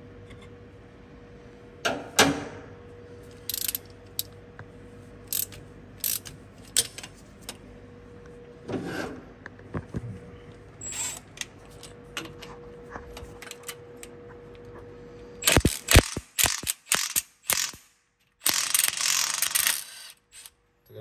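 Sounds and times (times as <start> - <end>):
impact wrench hammering: 15.4 - 20.0.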